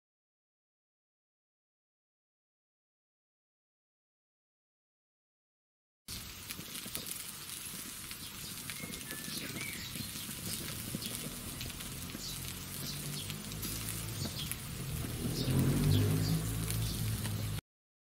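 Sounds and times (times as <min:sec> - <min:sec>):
food sizzling on grill: 0:06.1 - 0:17.6
low droning notes: 0:11.1 - 0:17.6.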